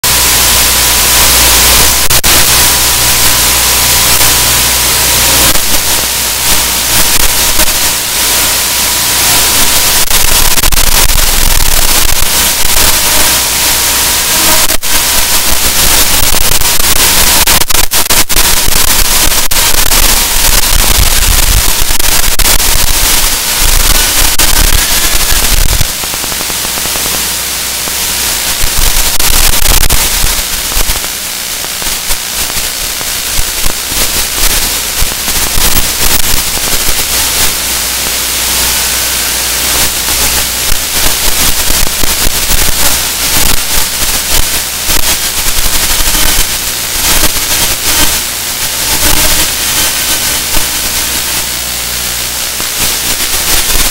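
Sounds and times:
loud static hiss: 0.0 - 53.9
sharp crackling clicks: 14.4 - 38.3.

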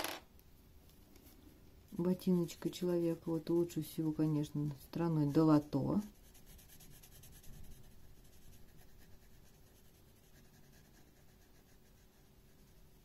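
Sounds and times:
marker scratching on paper: 5.2 - 12.8.

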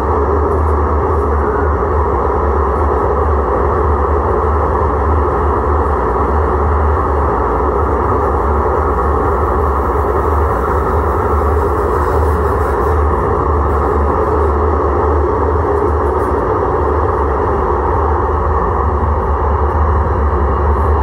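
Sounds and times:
tram humming: 0.0 - 21.0.

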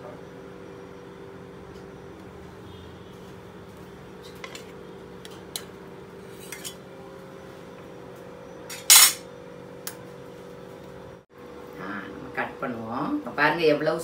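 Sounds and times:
knife scraping plate: 6.2 - 6.8.

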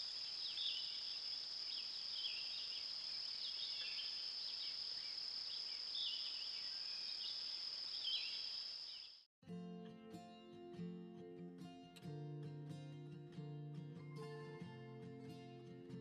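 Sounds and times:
high-pitched insect trill: 0.0 - 9.3.

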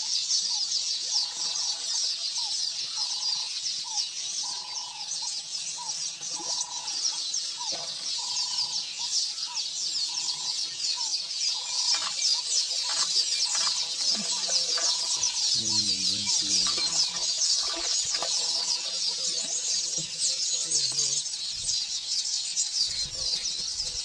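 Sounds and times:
birds chattering chorus: 0.0 - 24.0
short repeating bird calls: 8.2 - 21.4.

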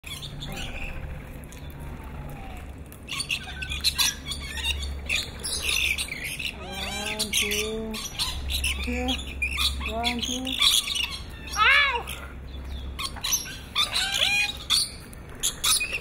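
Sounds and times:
parrots squawking shrilly: 3.1 - 12.4, 13.0 - 16.0.

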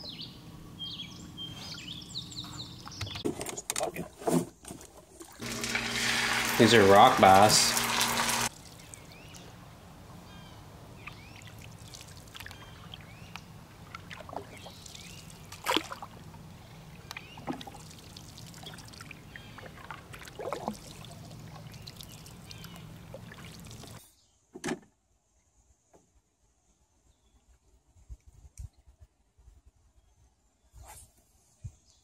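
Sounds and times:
bird chirps: 0.0 - 3.2
paddle splashing and dripping: 4.9 - 9.6, 11.0 - 24.0.

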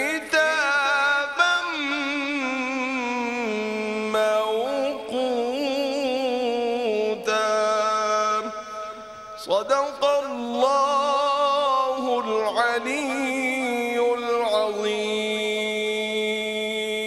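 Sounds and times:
man reciting melodically: 0.0 - 17.0.

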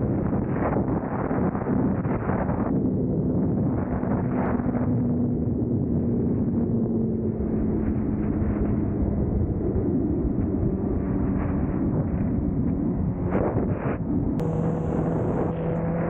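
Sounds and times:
wind rumble on microphone: 0.0 - 16.0
motorcycle engine cruising: 14.4 - 16.0.

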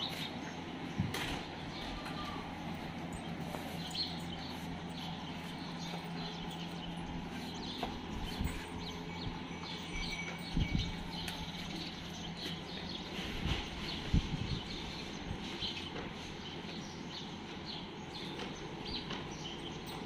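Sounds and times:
small birds chirping: 0.0 - 20.0
steady low hum: 0.0 - 20.0.

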